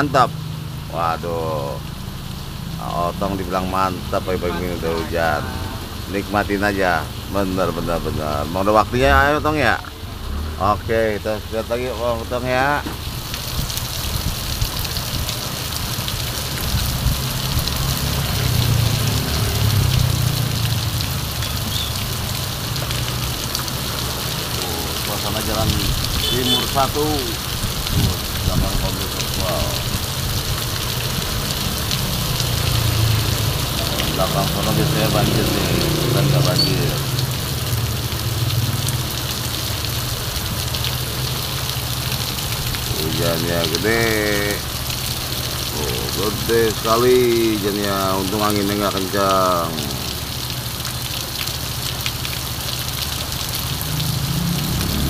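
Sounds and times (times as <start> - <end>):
heavy rain on a wet street: 0.0 - 55.0
motor scooter engine passing: 34.4 - 39.1.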